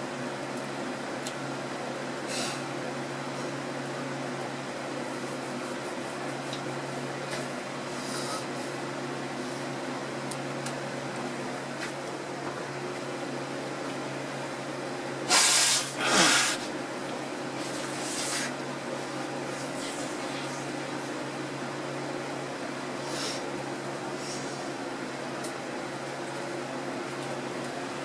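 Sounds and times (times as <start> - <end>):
steady low hum: 0.0 - 28.0.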